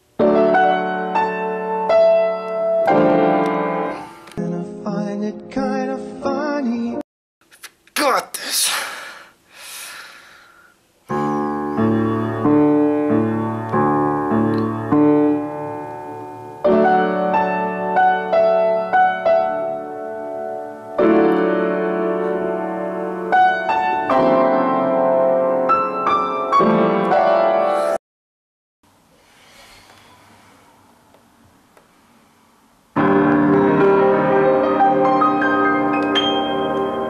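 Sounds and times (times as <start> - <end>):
piano playing held chords: 0.0 - 7.0, 11.1 - 28.0, 32.9 - 37.0.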